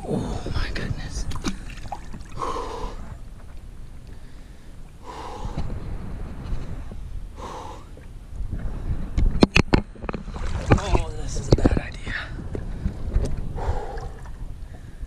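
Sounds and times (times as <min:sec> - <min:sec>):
man breathing hard and gasping: 0:02.4 - 0:03.1, 0:04.2 - 0:05.7, 0:12.3 - 0:15.0.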